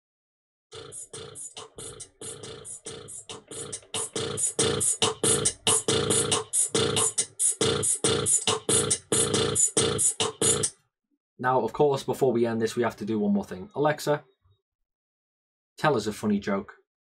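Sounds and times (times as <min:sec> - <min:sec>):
beatbox from speaker: 0:00.7 - 0:10.8.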